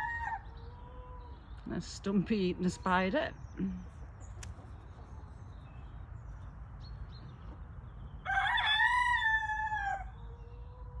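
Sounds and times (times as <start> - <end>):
rooster crowing: 8.2 - 10.3.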